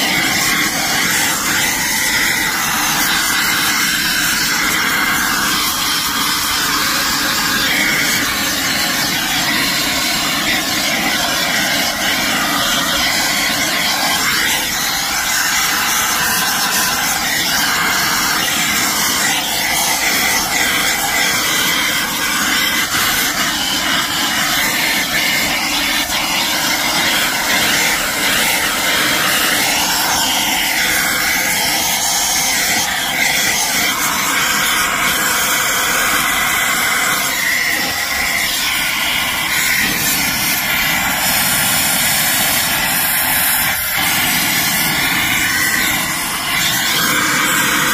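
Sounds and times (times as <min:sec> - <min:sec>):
air vacuum rushing hiss: 0:00.0 - 0:47.9.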